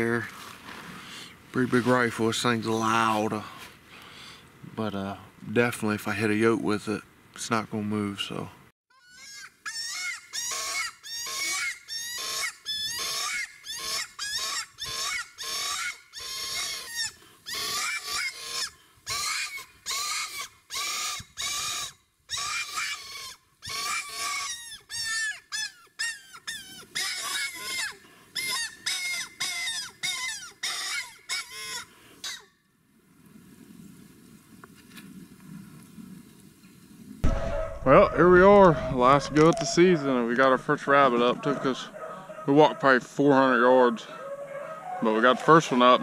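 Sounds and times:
predator call shrill squeal: 8.9s - 32.5s, 37.2s - 41.1s.

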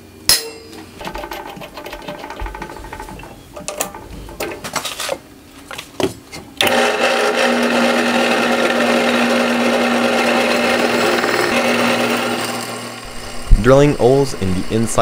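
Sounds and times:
drill press cutting steel: 6.6s - 15.0s.

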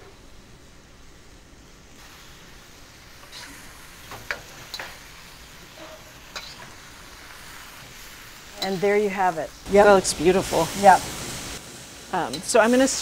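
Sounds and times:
food sizzling in a wok: 0.0s - 13.0s
metal spatula scraping wok: 3.2s - 5.0s, 5.6s - 6.8s.

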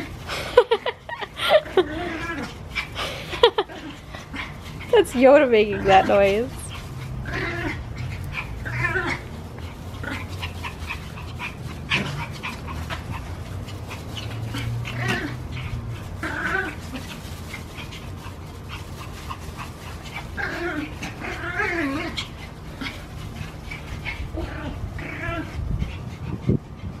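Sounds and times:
puppy crying out: 6.6s - 9.3s, 20.3s - 23.1s.

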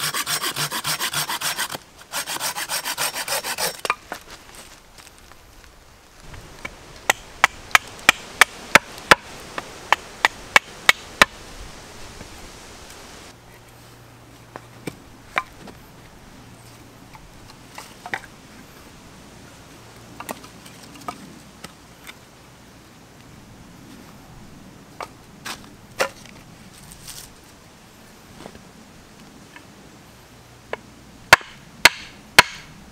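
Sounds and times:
hatchet chopping wood: 7.0s - 9.3s, 9.9s - 11.4s, 31.3s - 32.7s.

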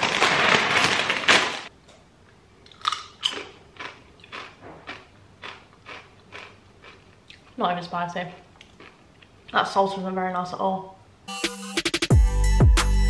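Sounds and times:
loud crackle: 0.0s - 1.7s
chewing crunchy chips: 2.6s - 7.6s, 8.6s - 9.6s.

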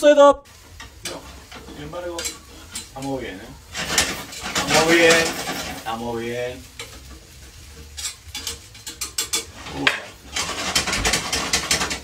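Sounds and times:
food sizzling in a frying pan: 0.4s - 12.0s
utensil scraping and tapping pan: 0.8s - 3.0s, 6.7s - 12.0s.

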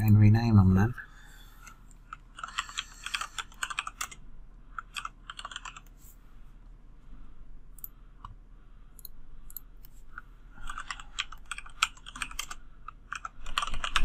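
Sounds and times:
typing on computer keyboard: 2.4s - 4.2s, 4.8s - 5.9s, 10.6s - 14.0s.

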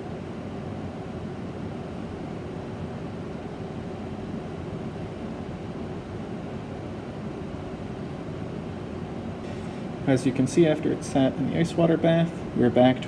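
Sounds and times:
fume hood exhaust airflow: 0.0s - 13.0s.

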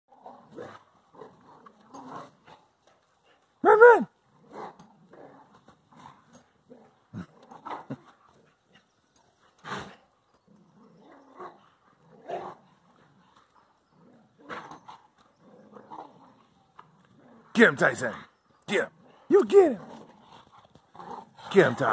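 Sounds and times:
dogs growling and grunting: 0.1s - 21.9s.

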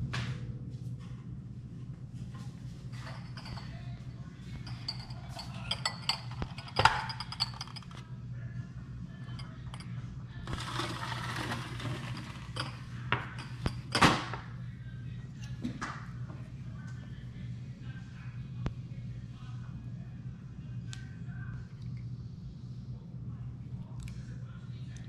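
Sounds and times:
steady low hum: 0.0s - 25.0s
glass jars clinking: 3.0s - 3.8s, 4.5s - 8.0s, 10.5s - 14.0s.

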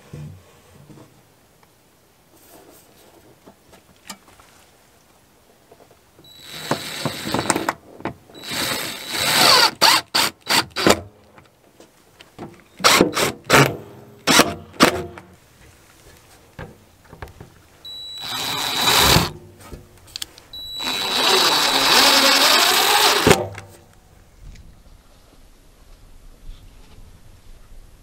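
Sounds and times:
cordless drill driving screws: 6.3s - 7.8s, 8.4s - 11.0s, 12.8s - 15.0s, 17.9s - 19.4s, 20.6s - 23.7s.

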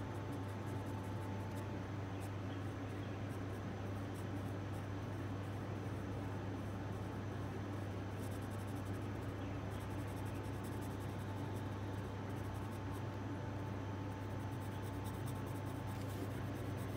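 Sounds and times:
steady low hum: 0.0s - 16.9s
pencil scratching on paper: 8.1s - 11.7s, 14.2s - 16.9s.

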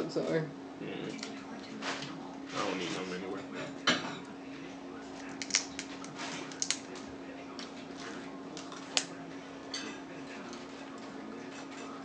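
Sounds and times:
steady low hum: 0.0s - 12.0s
crab shells cracking: 5.2s - 7.0s, 8.5s - 9.2s.

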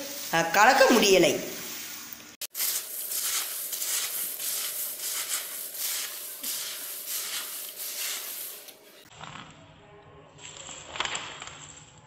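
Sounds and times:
hands tossing crisp snack mix: 2.5s - 8.8s.

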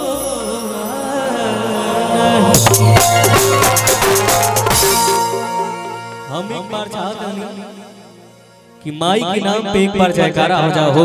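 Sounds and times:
devotional band with drums: 0.0s - 7.4s.

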